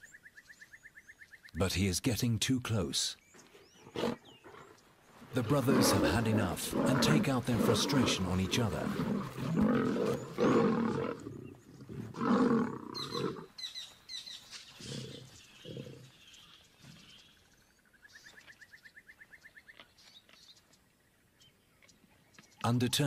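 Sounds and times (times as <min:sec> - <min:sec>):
lions growling and roaring: 0:03.5 - 0:13.5, 0:14.8 - 0:16.2.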